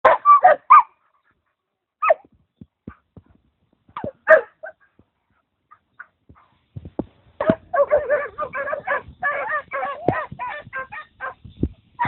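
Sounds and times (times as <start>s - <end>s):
dogs yelping: 0.1s - 0.9s, 7.4s - 11.4s.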